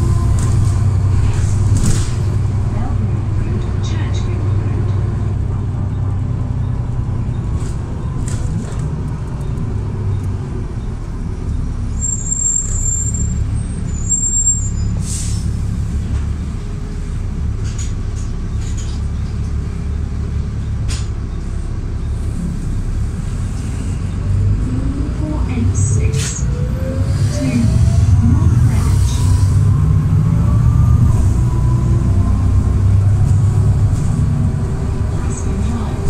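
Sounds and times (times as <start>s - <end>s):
bus engine rumbling: 0.0s - 36.0s
high squeal: 11.9s - 15.5s.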